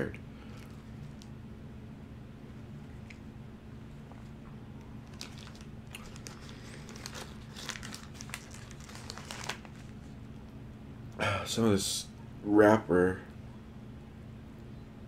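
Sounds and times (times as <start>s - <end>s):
paper wrapper crinkling: 5.0s - 10.2s.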